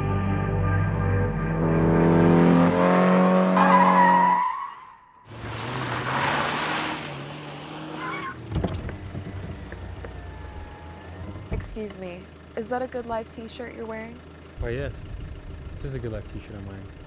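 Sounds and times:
ambient synth chord: 0.0s - 3.3s
car skidding with tyre squeal: 3.4s - 8.5s
car engine idling: 7.1s - 17.0s.

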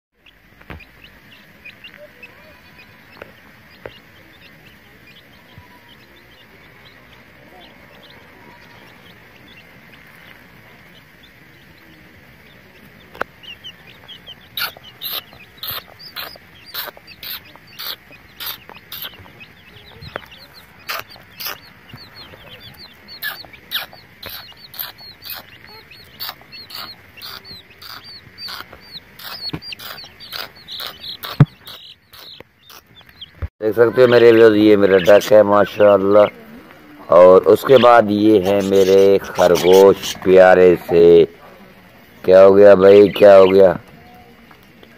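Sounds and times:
chicks peeping: 0.2s - 44.9s
sharp chirps: 13.4s - 33.4s.

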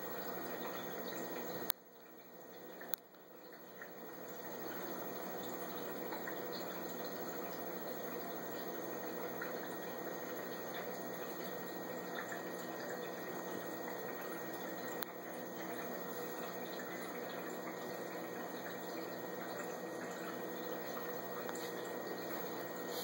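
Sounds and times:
low pump hum: 0.0s - 23.0s
water trickling: 0.0s - 23.0s
click: 2.8s - 3.1s.

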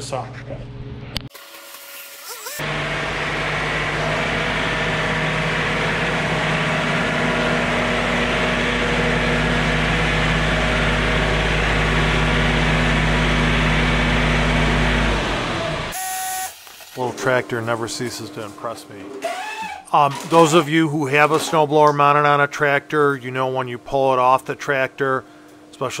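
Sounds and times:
tractor diesel engine running: 2.6s - 16.0s.

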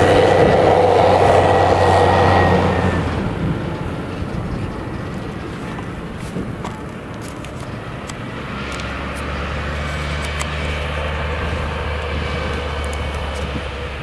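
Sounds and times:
diesel engine driving past: 0.0s - 14.0s
tyres on dirt track: 0.0s - 14.0s.

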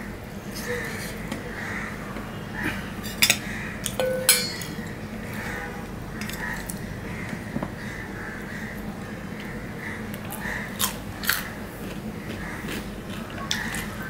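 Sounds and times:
steel plates clinking: 3.1s - 5.0s.

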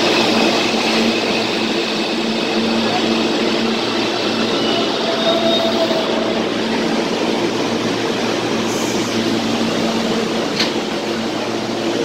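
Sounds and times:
subway train humming: 0.0s - 12.0s.

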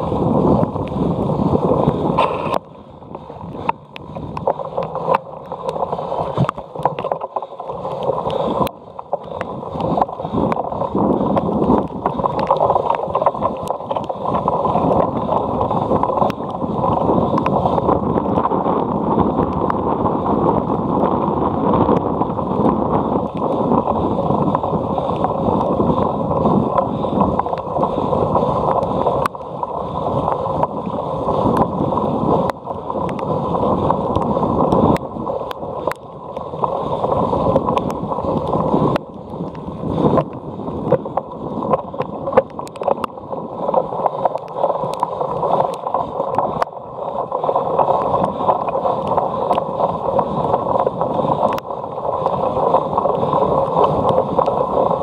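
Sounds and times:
wind on microphone: 0.0s - 55.0s.

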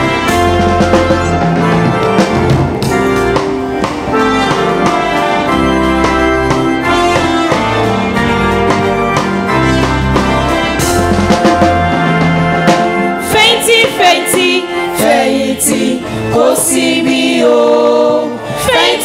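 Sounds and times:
bass line: 0.0s - 14.1s
drum kit beat: 0.0s - 17.4s
keyboard chords: 0.0s - 19.0s.

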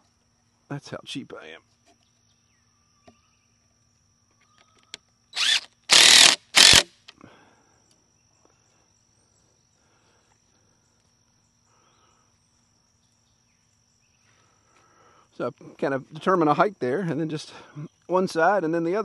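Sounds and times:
cordless drill motor: 5.4s - 6.9s.

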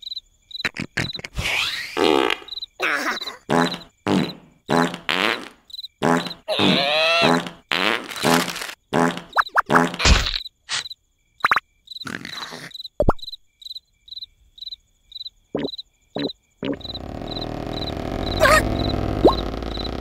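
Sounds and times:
cricket chirping: 0.0s - 20.0s
squeaky cartoon sound effects: 2.8s - 3.9s, 6.2s - 7.5s, 15.6s - 19.9s
low rumbling noise: 16.9s - 20.0s.

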